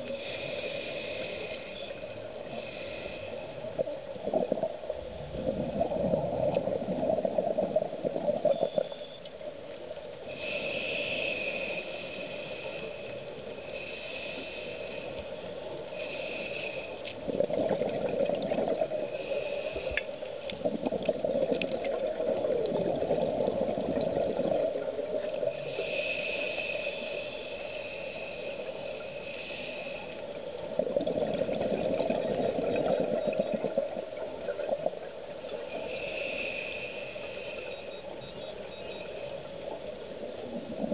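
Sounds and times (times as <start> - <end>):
regulator inhalation hiss: 0.1 - 3.6, 10.3 - 17.0, 19.1 - 20.0, 25.6 - 30.2, 35.6 - 39.4
exhaled bubbles underwater: 4.2 - 8.9, 17.2 - 19.3, 20.6 - 25.6, 30.6 - 35.1.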